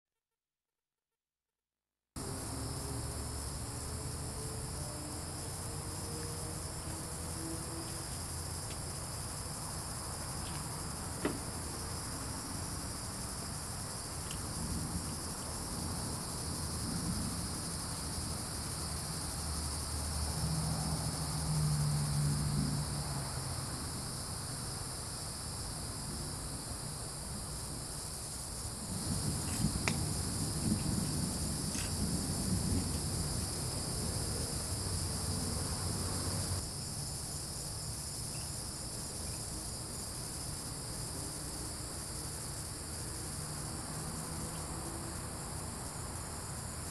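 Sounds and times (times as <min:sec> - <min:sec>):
crickets and insects shrilling: 0:02.2 - 0:46.9.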